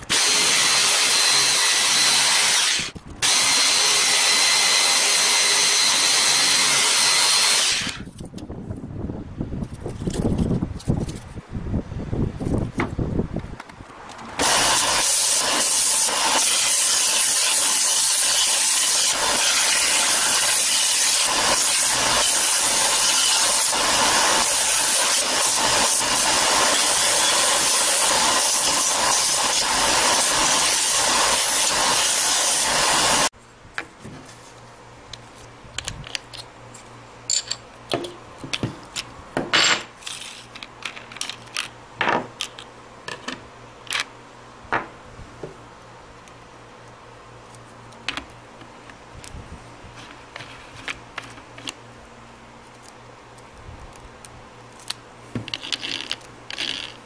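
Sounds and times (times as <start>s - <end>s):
tools knocking and clattering: 37.3s - 44.1s.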